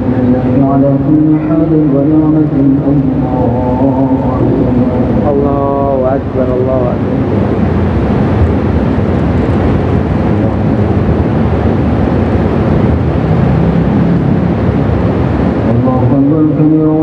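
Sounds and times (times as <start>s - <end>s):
murmur of many voices: 0.0s - 8.8s, 13.9s - 17.0s.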